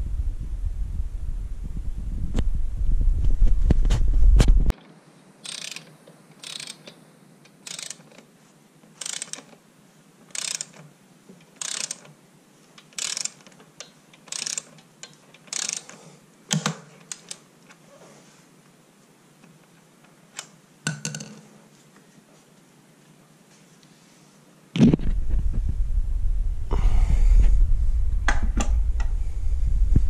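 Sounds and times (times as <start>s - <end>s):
loud low rumble: 0.0s - 4.7s, 24.8s - 30.0s
ratchet wrench clicking: 5.4s - 7.0s, 7.6s - 8.2s, 9.0s - 9.5s, 10.3s - 10.8s, 11.6s - 12.1s, 12.8s - 13.6s, 14.2s - 14.8s, 15.4s - 16.0s, 16.6s - 17.4s.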